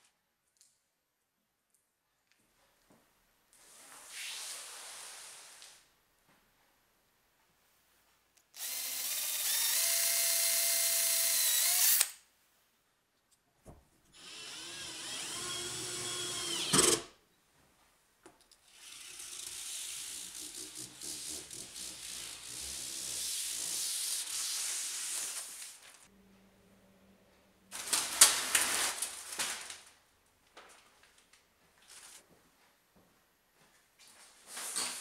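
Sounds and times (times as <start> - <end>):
drill motor whine: 8.6 - 12.1, 14.2 - 17.0.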